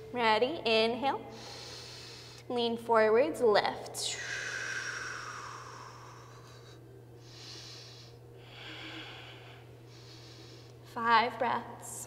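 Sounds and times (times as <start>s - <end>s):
woman breathing effortfully: 1.3s - 2.5s, 4.0s - 10.9s.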